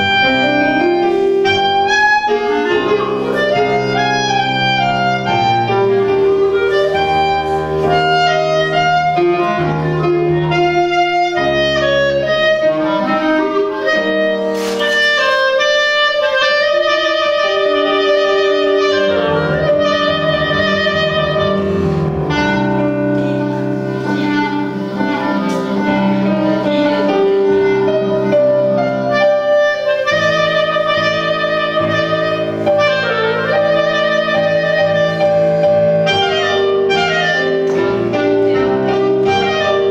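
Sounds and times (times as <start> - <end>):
piano accompaniment: 0.0 - 39.9
solo clarinet melody: 0.0 - 39.9.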